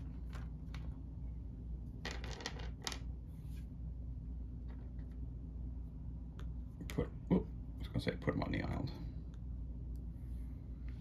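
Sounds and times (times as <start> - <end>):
plastic figures clattering on table: 2.0 - 3.1.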